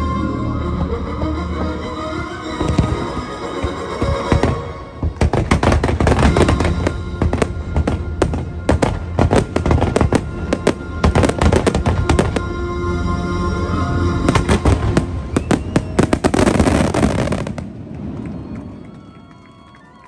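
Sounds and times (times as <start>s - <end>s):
music soundtrack: 0.0s - 18.8s
fireworks bursts and bangs: 2.6s - 12.5s, 14.3s - 19.3s
fireworks crackling: 2.6s - 12.6s, 14.2s - 20.0s.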